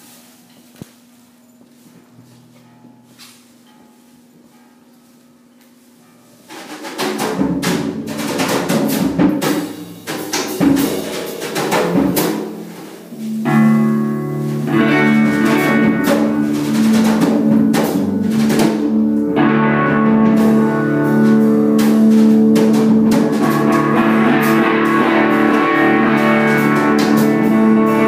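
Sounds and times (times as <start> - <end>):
drum hits and cymbal crashes: 6.5 - 19.1, 20.0 - 28.0
electric guitar chord ringing: 12.4 - 28.0.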